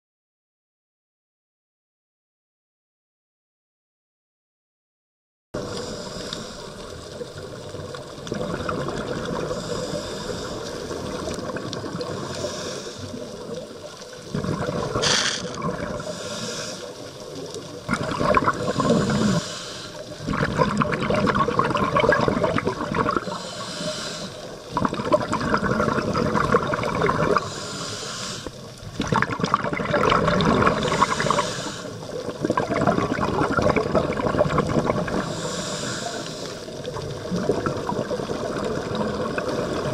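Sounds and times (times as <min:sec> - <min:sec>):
regulator hiss on inhale: 0:05.6 - 0:08.0, 0:09.3 - 0:11.4, 0:12.0 - 0:14.1, 0:15.0 - 0:17.7, 0:18.5 - 0:20.3, 0:23.1 - 0:24.8, 0:27.3 - 0:28.8, 0:30.6 - 0:32.3, 0:35.0 - 0:37.0
bubbling on exhale: 0:05.6 - 0:39.9.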